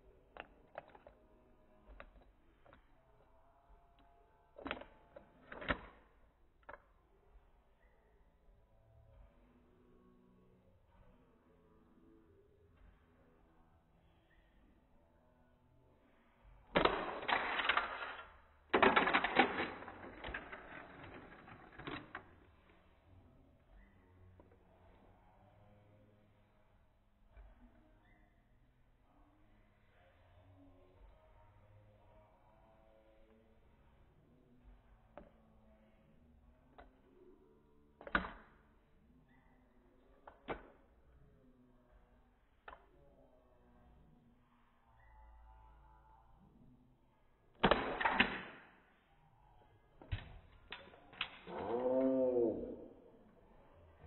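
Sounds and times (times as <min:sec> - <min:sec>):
plastic toy track clattering: 0:00.4 - 0:01.2, 0:16.8 - 0:22.8.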